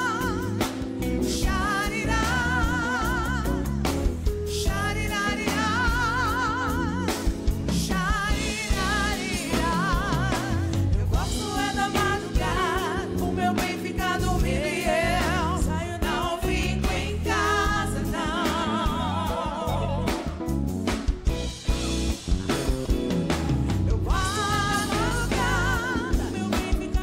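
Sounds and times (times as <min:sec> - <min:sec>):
women singing soul-pop song: 0:00.0 - 0:20.6, 0:24.0 - 0:27.0
drum kit: 0:00.0 - 0:27.0
electric guitar: 0:18.7 - 0:27.0.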